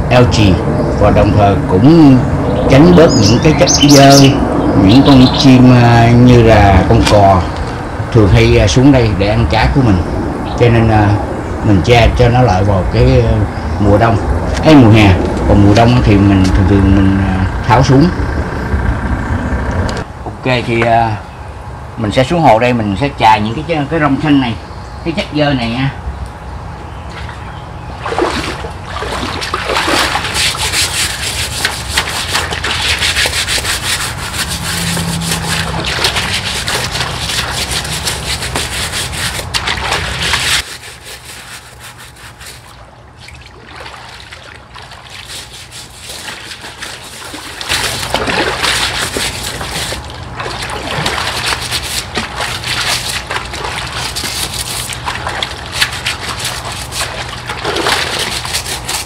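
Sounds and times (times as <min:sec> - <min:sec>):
water splashing and sloshing: 0:27.1 - 0:59.0
scrubber rasping underwater: 0:28.1 - 0:59.0.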